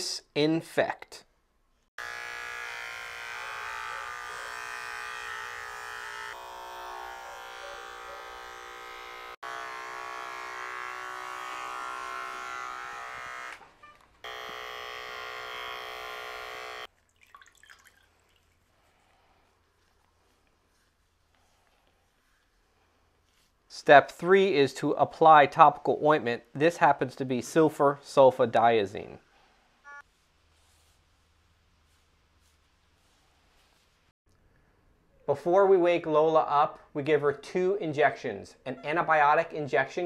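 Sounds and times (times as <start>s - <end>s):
electric hair clippers humming: 2.0s - 16.9s.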